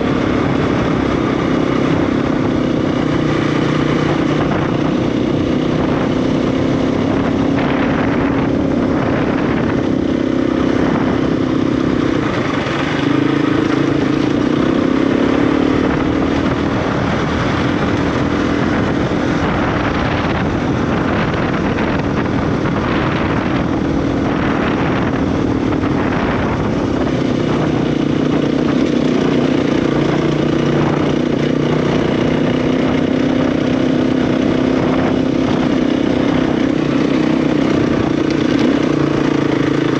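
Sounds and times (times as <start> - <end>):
dirt bike engine running: 0.0 - 39.9.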